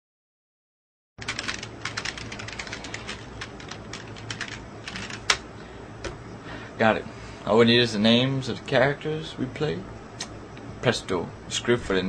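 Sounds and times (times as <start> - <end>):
keyboard typing: 1.2 - 5.4.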